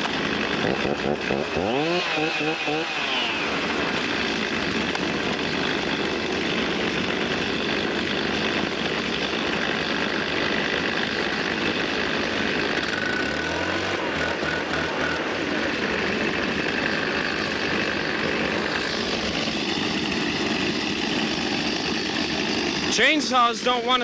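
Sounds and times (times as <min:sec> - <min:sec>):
engine revving: 0:00.0 - 0:05.1, 0:11.3 - 0:20.4
small two-stroke engines droning: 0:00.0 - 0:24.0.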